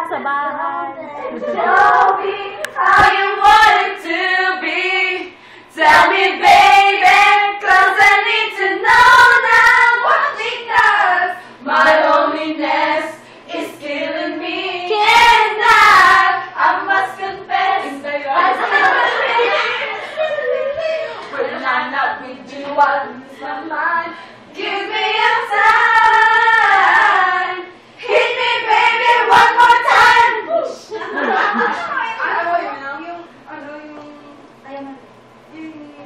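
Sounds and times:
women singing loudly: 0.0 - 30.9.

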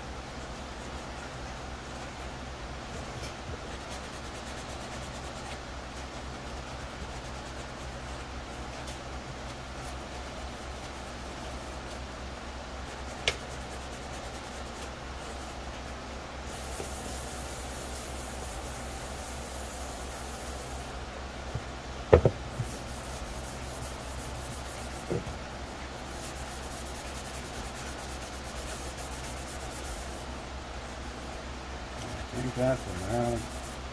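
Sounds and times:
sanding sponge rubbing plastic: 3.8 - 5.6, 12.9 - 15.5, 16.5 - 20.8, 22.6 - 25.2, 26.0 - 30.3, 32.1 - 33.9
sharp knocks: 21.6 - 22.4.

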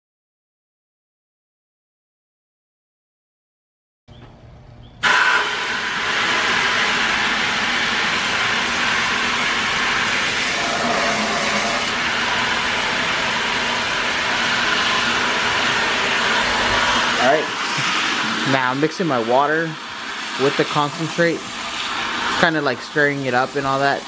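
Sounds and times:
pressure washer spraying into bucket: 5.0 - 24.0.

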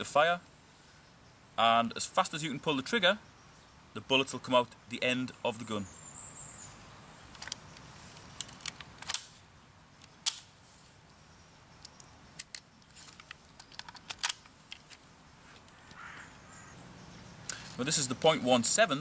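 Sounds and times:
light clicks and rattles: 11.8 - 16.0.

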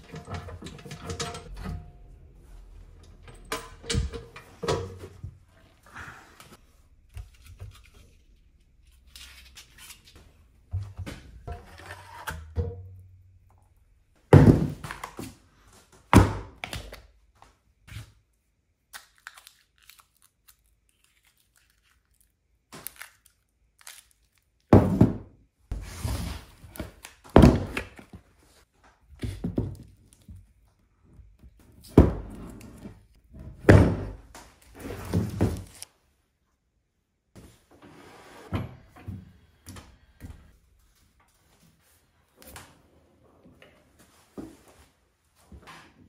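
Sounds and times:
knocking and clatter: 0.0 - 2.0
heavy thunks on a workbench: 14.3 - 14.9.

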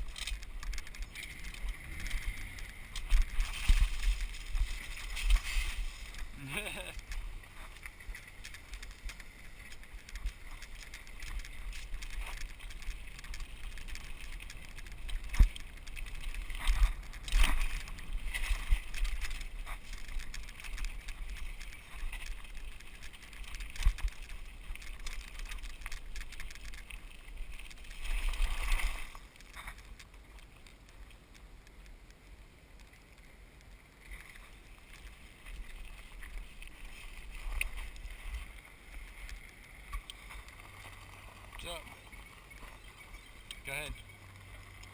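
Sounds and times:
bike rattling over bumps: 0.0 - 30.0
wind rumbling on microphone: 0.0 - 31.8
bike tyres on gravel: 0.0 - 44.9.

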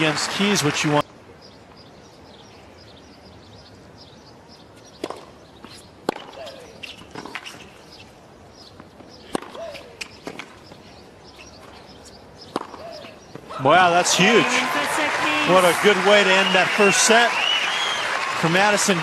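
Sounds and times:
tennis ball hit by racquet: 5.0 - 7.6, 9.2 - 10.6, 12.5 - 13.4.

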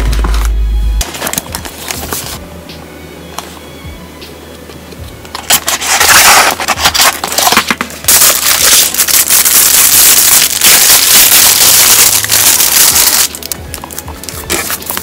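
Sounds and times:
soft background music: 0.0 - 15.0
box cutter slicing tape: 5.4 - 13.6
plastic bag crinkling: 5.5 - 15.0.

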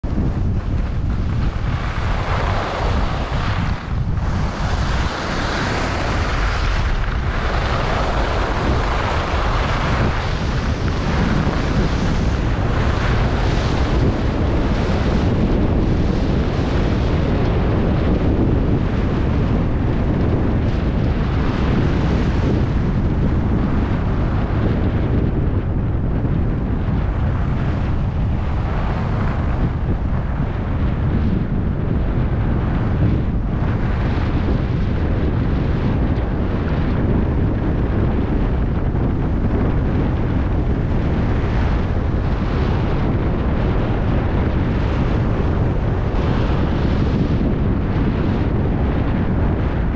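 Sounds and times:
wind buffeting microphone: 0.0 - 49.9
skis carving on snow: 0.1 - 20.4.

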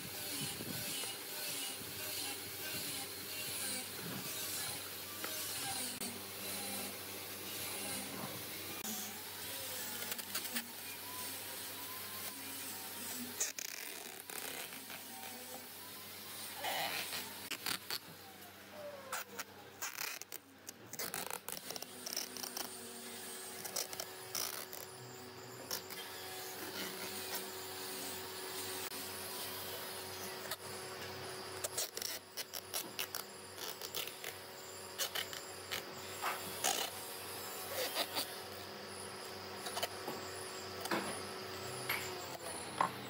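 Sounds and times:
sharp clicks and rubbing: 19.1 - 25.0
woodworking power tool running: 21.6 - 31.7, 32.8 - 43.0.

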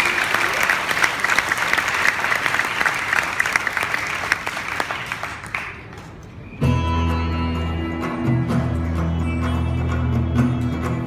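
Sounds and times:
audience applauding: 0.0 - 6.4.

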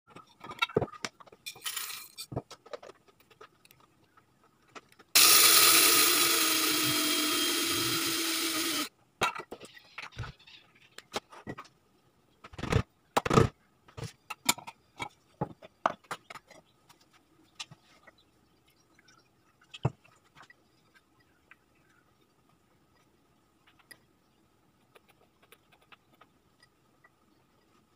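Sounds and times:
electric coffee grinder running: 5.2 - 8.9.

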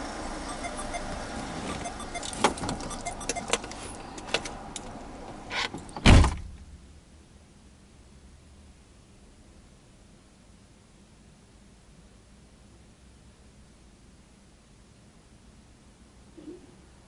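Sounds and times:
street sound: 0.0 - 6.0
car door slamming: 6.0 - 6.6.

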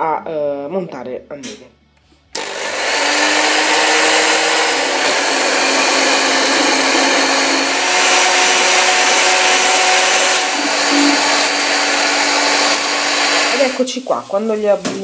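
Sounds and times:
electric hand mixer whirring: 2.4 - 13.9.

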